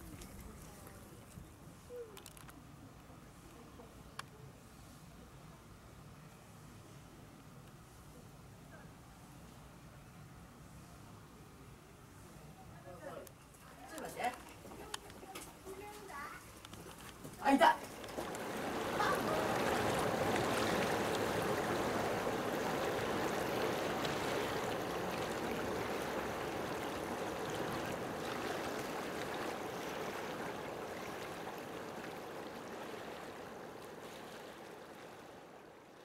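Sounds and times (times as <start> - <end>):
flowing water rushing: 16.9 - 36.0.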